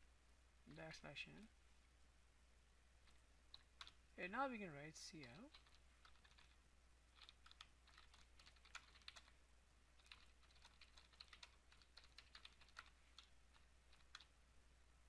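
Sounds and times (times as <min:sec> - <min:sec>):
steady low hum: 0:00.0 - 0:15.0
computer keyboard typing: 0:03.1 - 0:04.0, 0:05.2 - 0:09.4, 0:10.0 - 0:14.3.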